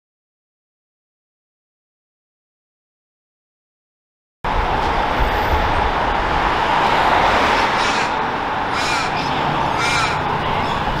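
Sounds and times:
road traffic noise: 4.4 - 11.0
car passing close by: 4.5 - 10.2
bird calling: 7.6 - 10.8.

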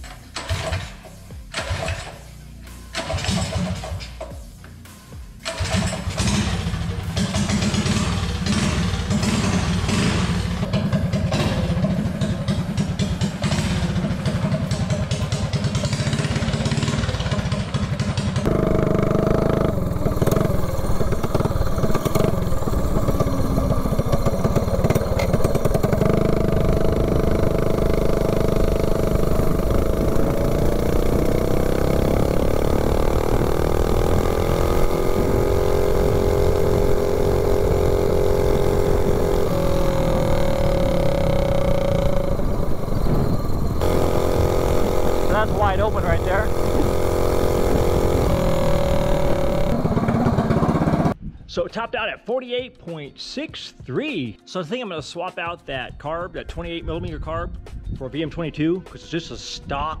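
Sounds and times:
mini bike engine running: 5.4 - 51.2.

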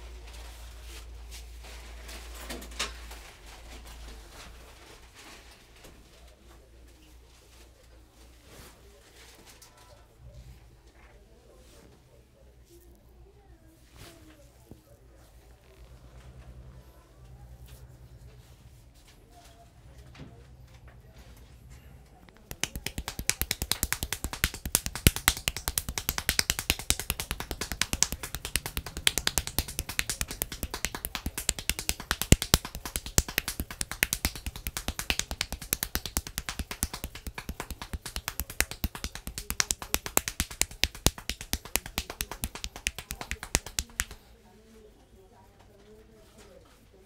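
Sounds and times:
hair cracking between fingers: 22.4 - 44.2.

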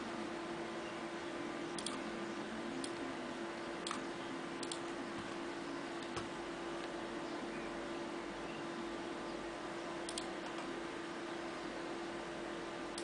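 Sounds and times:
steady hum and hiss: 0.0 - 13.0
computer mouse clicks: 1.8 - 2.0, 3.8 - 5.4, 10.0 - 10.7.

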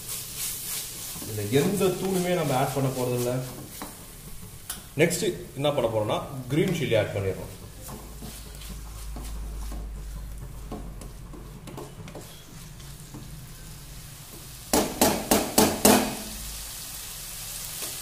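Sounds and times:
wooden spatula scraping frying pan: 0.0 - 4.6, 5.3 - 15.3
faint sizzle: 0.0 - 18.0
utensil tapping against pan: 7.6 - 12.4, 14.7 - 16.3.

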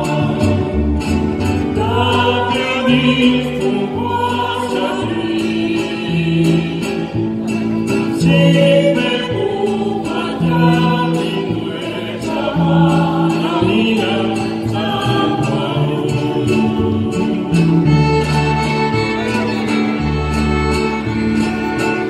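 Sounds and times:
choir singing: 0.0 - 7.2, 8.2 - 18.6
bass line: 0.0 - 22.0.

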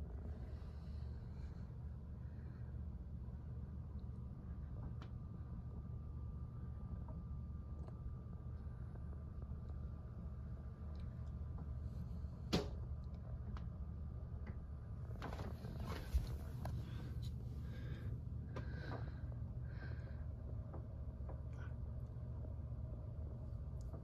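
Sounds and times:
low room hum: 0.0 - 24.0
soft rustles and light knocks: 15.1 - 17.5.

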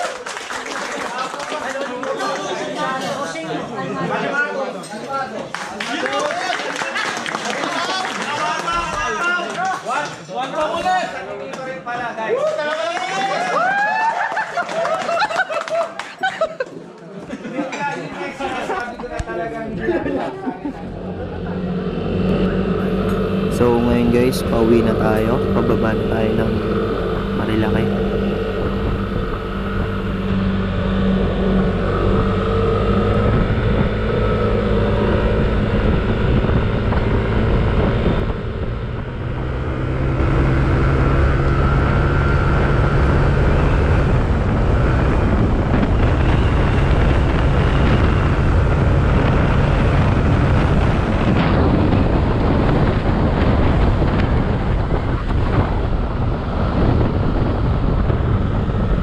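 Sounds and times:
scooter engine running: 20.7 - 59.0
wind rushing over microphone: 20.7 - 59.0.

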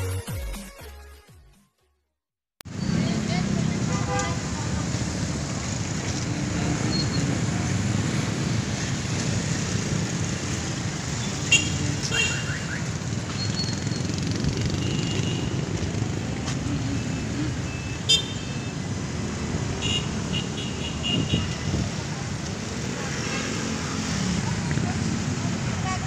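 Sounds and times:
street traffic hum: 2.6 - 26.0.

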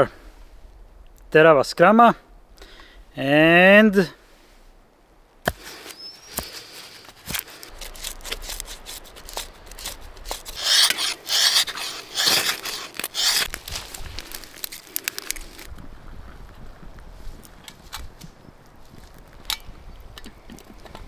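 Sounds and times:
scraping rasping strokes: 5.5 - 15.7.

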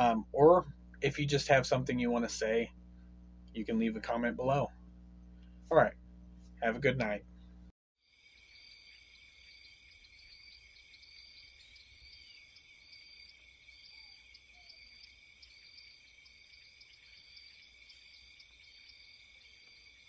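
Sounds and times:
cricket chirps: 8.0 - 20.0
high insect trilling: 8.0 - 20.0.

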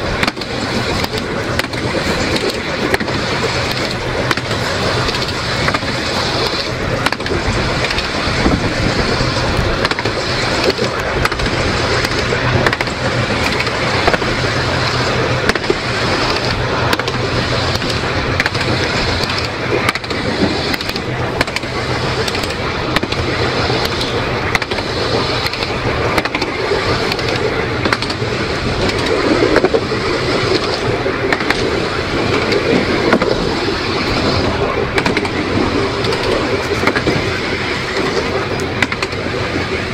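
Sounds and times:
low hum: 0.0 - 39.9
tram wheels rumbling on rail: 0.0 - 39.9.

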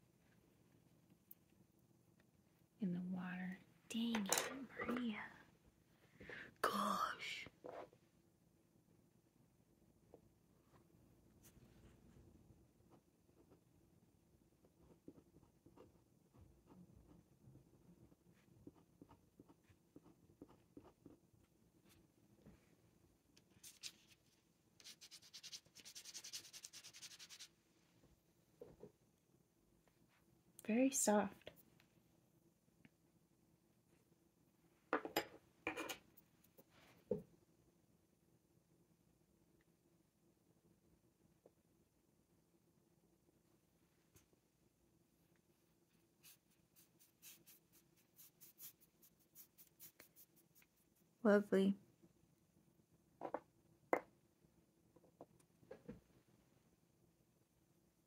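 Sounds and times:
paintbrush swishing on paper: 23.6 - 27.6, 46.0 - 51.1.

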